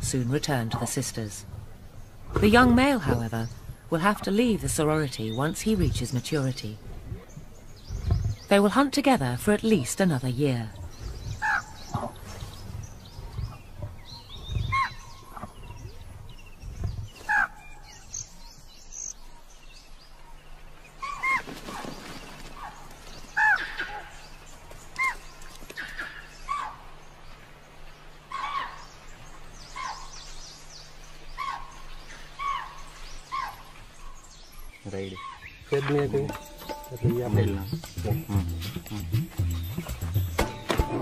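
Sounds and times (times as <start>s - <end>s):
steady low hum: 0.0s - 19.3s, 36.0s - 41.0s
birds chirping: 0.0s - 41.0s.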